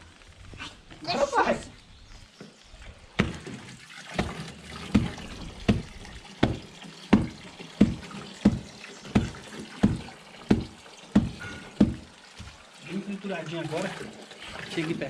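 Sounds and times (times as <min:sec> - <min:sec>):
stone pounding on wooden board: 0:05.0 - 0:12.1.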